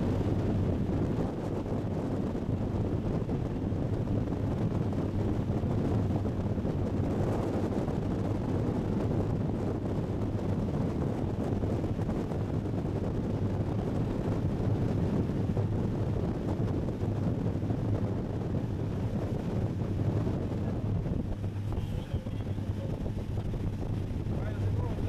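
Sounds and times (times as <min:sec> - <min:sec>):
boat engines humming: 0:00.0 - 0:25.0
wind buffeting microphone: 0:00.0 - 0:25.0
water rushing past hull: 0:10.6 - 0:25.0.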